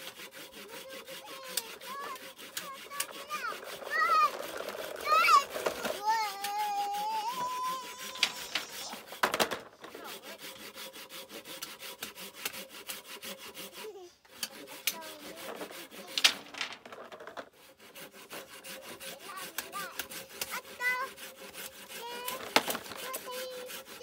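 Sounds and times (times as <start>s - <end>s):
hand saw cutting bamboo: 0.0s - 16.6s, 17.4s - 24.0s.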